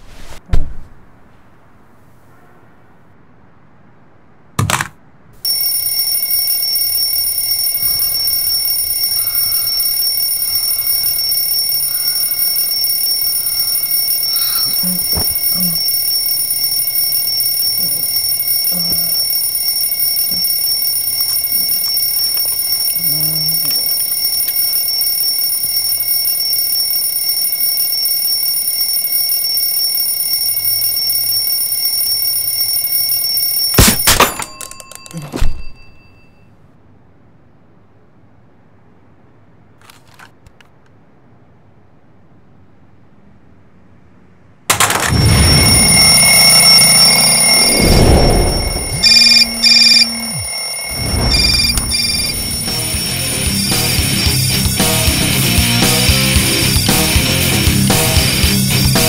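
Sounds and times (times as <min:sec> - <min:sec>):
alarm clock ringing: 0:05.4 - 0:36.5, 0:44.7 - 0:59.0.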